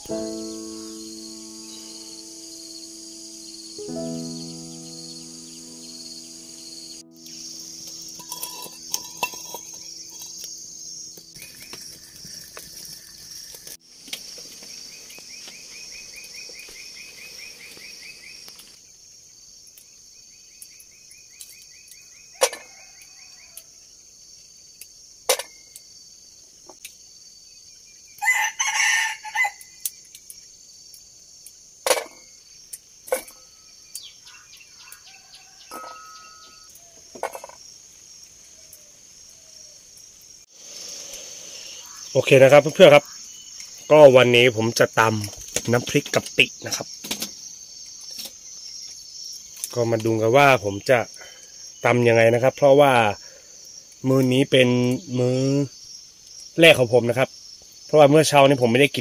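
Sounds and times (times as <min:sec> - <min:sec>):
insects buzzing: 0:00.0 - 0:59.0
rooster crowing: 0:22.4 - 0:23.7, 0:28.2 - 0:29.8, 0:34.3 - 0:36.7.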